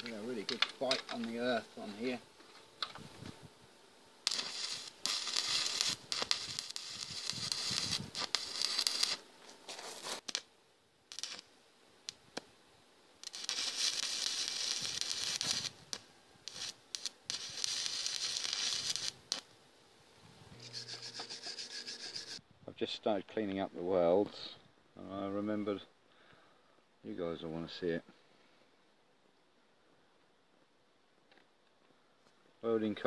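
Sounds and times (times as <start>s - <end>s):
welding arc crackling: 0.0s - 2.2s, 4.2s - 10.5s, 11.1s - 11.5s, 13.2s - 19.5s, 20.6s - 22.4s.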